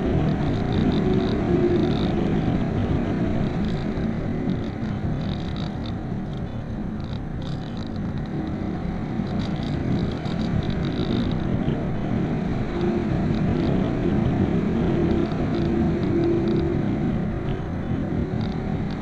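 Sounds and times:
wind buffeting microphone: 0.0 - 19.0
light crackles: 0.2 - 8.6.

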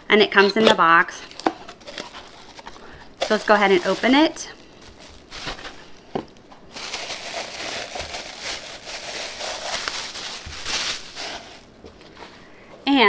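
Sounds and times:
packaging crinkling and rustling: 0.4 - 12.1.

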